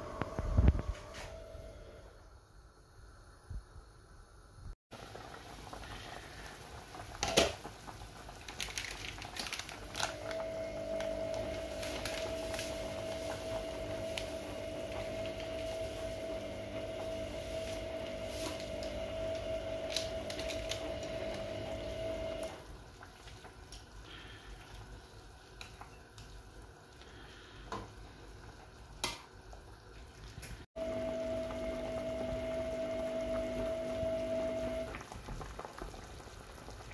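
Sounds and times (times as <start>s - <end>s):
steady mechanical hum: 0.0s - 7.0s
soup boiling in a pot: 1.9s - 36.9s.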